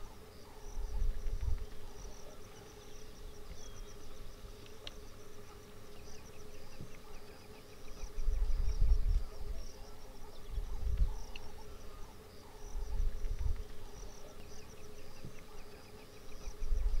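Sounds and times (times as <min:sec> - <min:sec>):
faint drone: 0:00.0 - 0:17.0
high insect hiss: 0:00.0 - 0:17.0
insects chirping in trills: 0:00.0 - 0:17.0.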